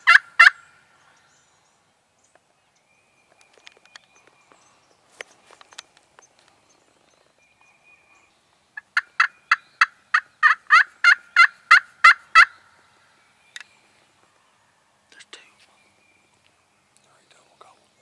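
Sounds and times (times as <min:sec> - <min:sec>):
turkey yelping: 0:00.0 - 0:00.6, 0:09.0 - 0:12.6.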